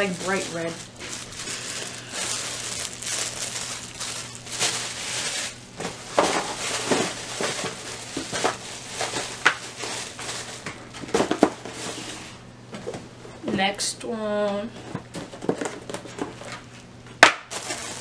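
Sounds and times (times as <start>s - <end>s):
plastic wrapping crinkling: 0.0s - 12.0s, 17.4s - 18.0s.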